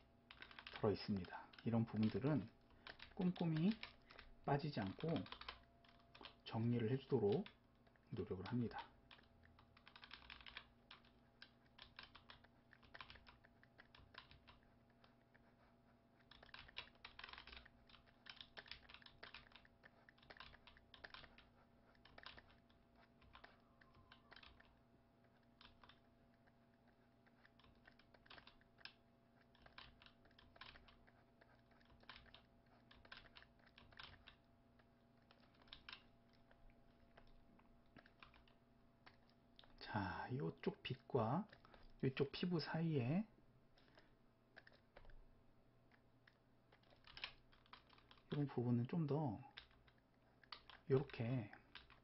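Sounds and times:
low steady hum: 0.0s - 52.0s
computer input clicking and tapping: 0.3s - 7.5s.

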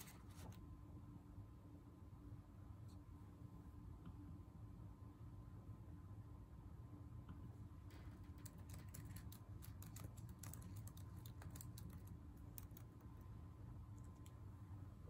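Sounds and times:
low steady hum: 0.0s - 15.0s
keyboard typing: 7.9s - 13.0s.

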